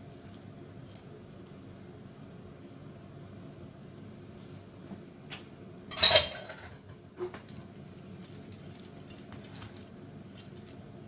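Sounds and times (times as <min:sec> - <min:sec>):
metal cake tin clanking: 0:05.9 - 0:06.8.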